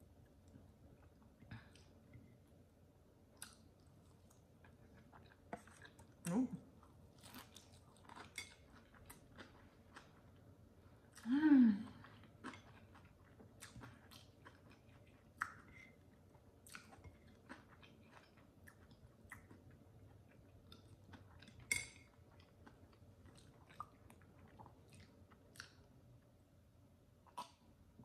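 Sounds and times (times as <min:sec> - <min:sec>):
chewing and mouth sounds: 0:03.4 - 0:10.5, 0:12.0 - 0:25.9.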